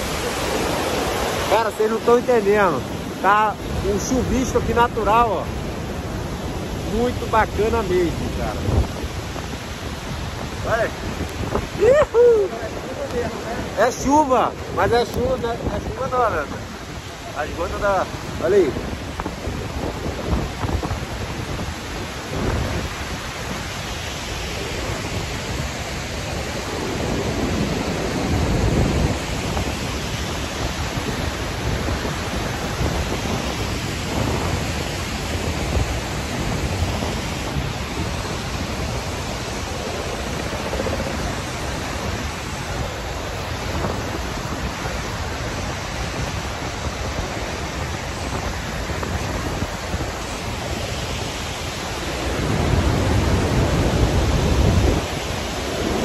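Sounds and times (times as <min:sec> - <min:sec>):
waterfall roaring: 0:00.0 - 0:56.0
wind buffeting microphone: 0:00.0 - 0:56.0.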